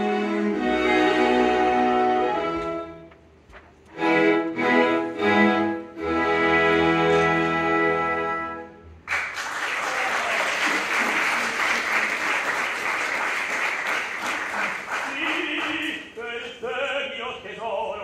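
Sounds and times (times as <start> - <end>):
orchestra chord: 4.0 - 8.9
audience applauding: 9.1 - 16.2
person speaking: 15.0 - 18.0.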